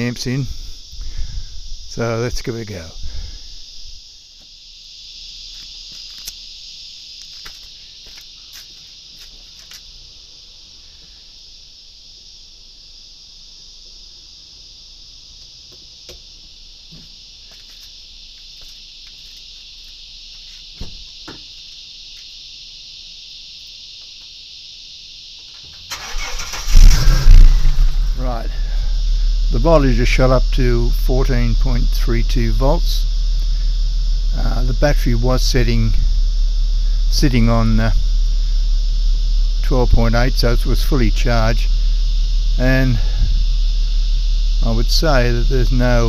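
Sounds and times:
insects chirring: 0:00.0 - 0:46.0
loud low rumble: 0:26.6 - 0:46.0.

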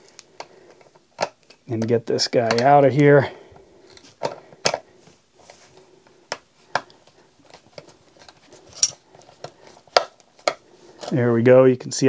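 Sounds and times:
pliers clicking and creaking: 0:06.3 - 0:11.2.

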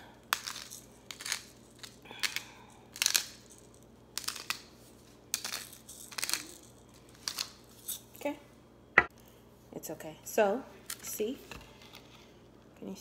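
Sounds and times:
pepper grinder crunching peppercorns: 0:00.1 - 0:08.2.

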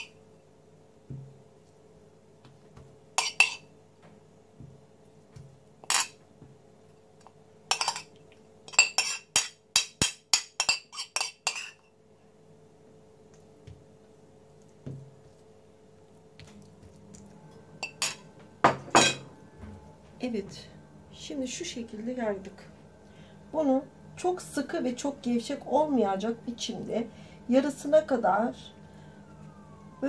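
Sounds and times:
metal utensil clinking on plate: 0:03.2 - 0:03.6, 0:07.7 - 0:08.1, 0:17.8 - 0:18.2.

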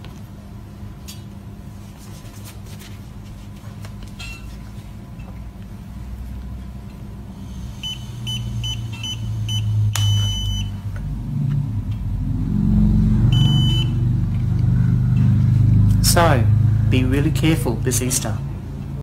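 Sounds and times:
low hum: 0:03.9 - 0:19.0
breathalyser beeping: 0:07.6 - 0:10.8, 0:13.3 - 0:14.0.

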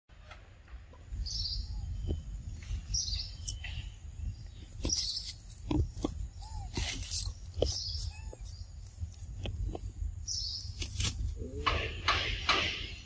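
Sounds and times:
high bird calls: 0:01.1 - 0:09.3
sharp knocks: 0:11.6 - 0:13.0.

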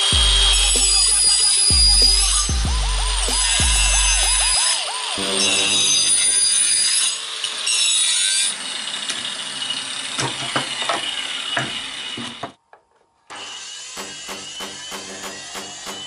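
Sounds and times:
background music with steady beat: 0:00.0 - 0:04.6
angle grinder cutting wood: 0:00.0 - 0:12.6, 0:13.3 - 0:16.0.

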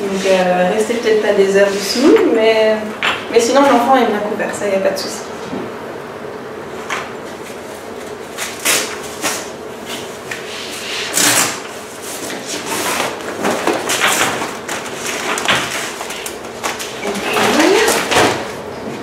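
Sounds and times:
plastic cover rustling and crinkling: 0:11.8 - 0:18.6.

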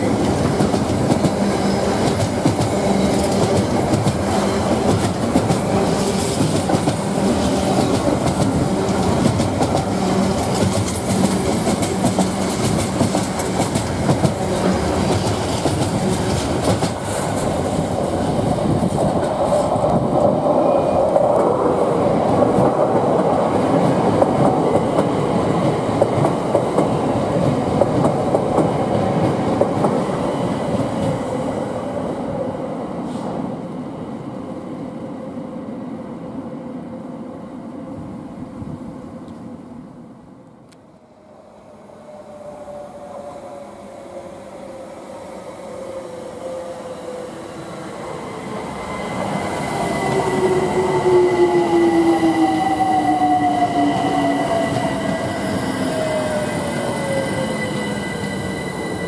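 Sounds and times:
electric train running past: 0:00.0 - 0:40.5, 0:41.2 - 0:59.0.

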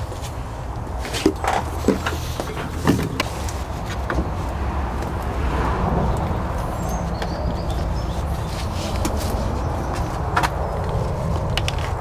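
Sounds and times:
clicks and knocks of car parts: 0:01.0 - 0:04.4, 0:09.9 - 0:12.0.

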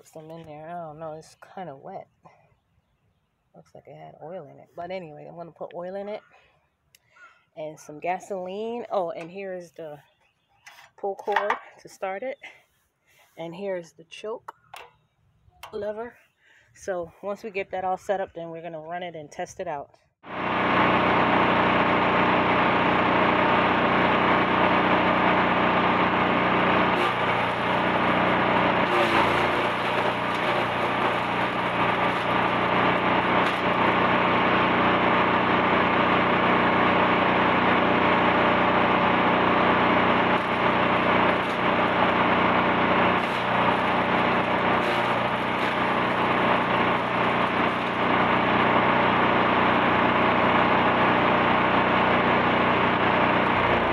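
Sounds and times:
wood chipper engine running: 0:20.2 - 0:53.9.

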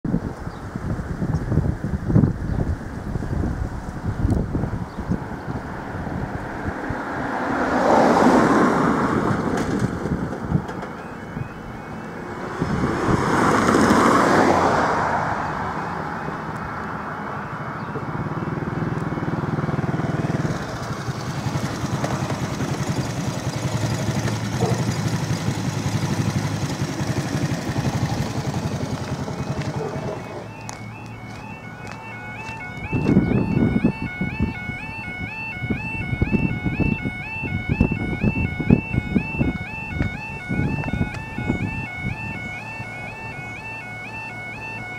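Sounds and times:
road vehicles passing: 0:00.1 - 0:44.9
level crossing alarm: 0:10.8 - 0:12.6, 0:26.6 - 0:44.9
higher alarm tone: 0:11.0 - 0:13.1, 0:27.1 - 0:44.9.

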